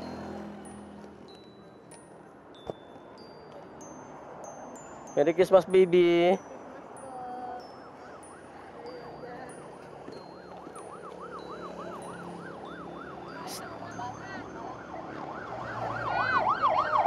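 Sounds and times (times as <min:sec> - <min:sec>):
siren yelping: 0:10.4 - 0:17.0.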